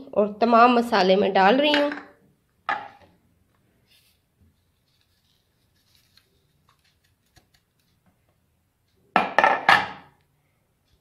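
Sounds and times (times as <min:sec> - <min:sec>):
dishes clattering loudly: 0:09.2 - 0:10.1.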